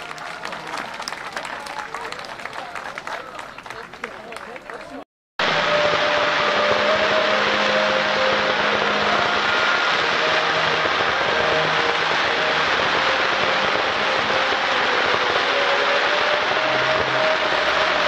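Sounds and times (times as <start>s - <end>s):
fountain fireworks hissing: 5.4s - 18.0s.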